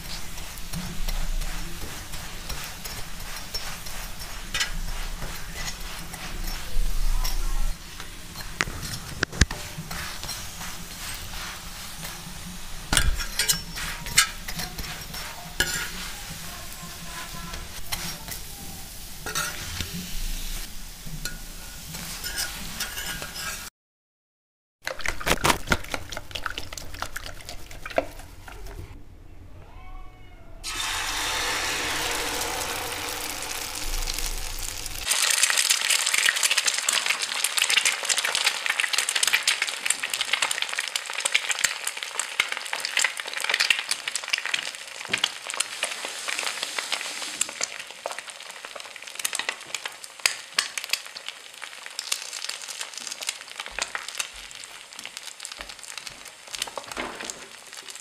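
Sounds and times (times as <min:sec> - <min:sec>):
egg mixture stirred in plastic bowl: 0:00.0 - 0:18.4, 0:24.9 - 0:29.0
egg batter sizzling in a pan: 0:00.0 - 0:23.7, 0:24.9 - 0:28.8, 0:30.6 - 0:58.0.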